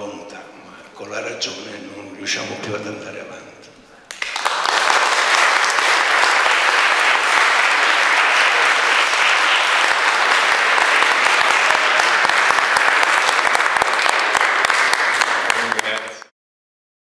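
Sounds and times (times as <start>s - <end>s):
audience applauding: 4.1s - 16.3s.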